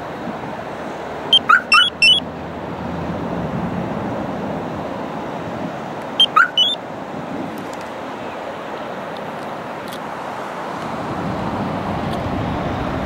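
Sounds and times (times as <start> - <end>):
traffic noise: 0.0 - 13.0
wind: 0.0 - 13.0
car alarm electronic chirps: 1.3 - 2.2, 6.2 - 6.8.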